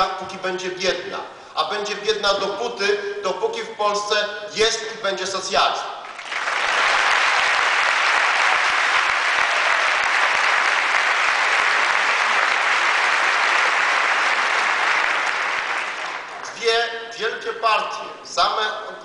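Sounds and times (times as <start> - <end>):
large audience applauding: 6.0 - 16.6.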